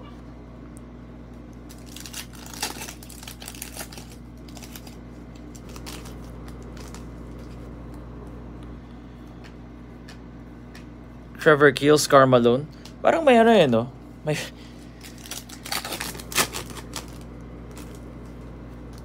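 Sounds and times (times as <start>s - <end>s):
foil wrapper crinkling and tearing: 1.6s - 7.6s, 14.8s - 19.0s.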